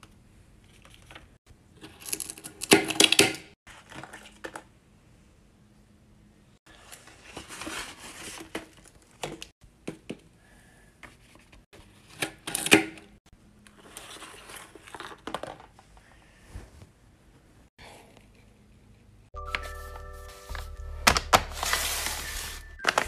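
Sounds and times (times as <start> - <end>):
paper crinkling and rustling: 7.0 - 9.5, 19.5 - 23.0.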